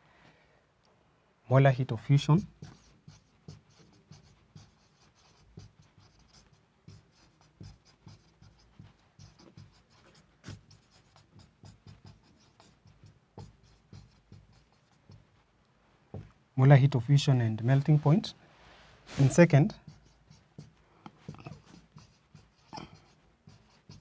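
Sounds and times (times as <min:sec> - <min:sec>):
marker tapping whiteboard: 0:02.4 - 0:15.4, 0:16.1 - 0:16.4, 0:19.8 - 0:24.0
marker squeaking on whiteboard: 0:02.4 - 0:15.5, 0:19.1 - 0:24.0.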